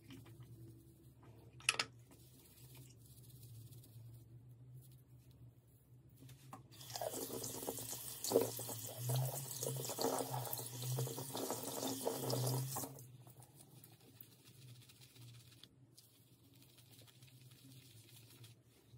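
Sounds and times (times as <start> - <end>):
sink tap running: 6.8 - 13.0.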